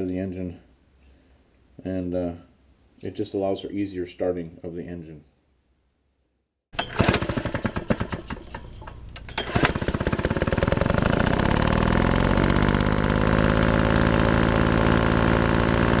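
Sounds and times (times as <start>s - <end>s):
engine sputtering then running: 6.8s - 16.0s.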